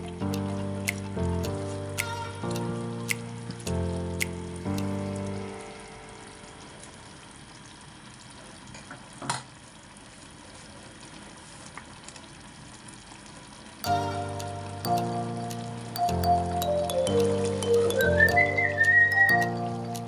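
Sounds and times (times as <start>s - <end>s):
background music: 0.0s - 6.7s, 13.8s - 20.0s
stew sizzling in a pan: 0.0s - 20.0s.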